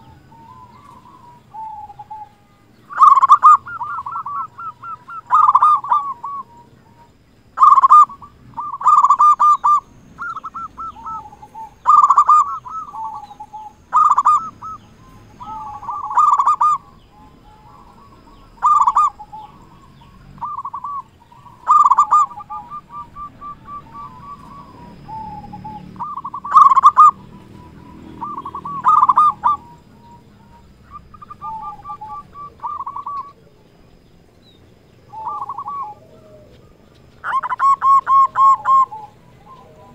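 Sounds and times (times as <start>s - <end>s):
dove cooing: 0.0s - 39.9s.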